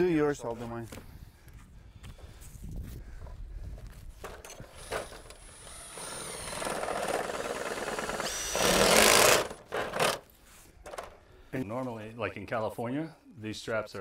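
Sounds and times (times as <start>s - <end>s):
cordless driver whining: 4.3s - 10.2s.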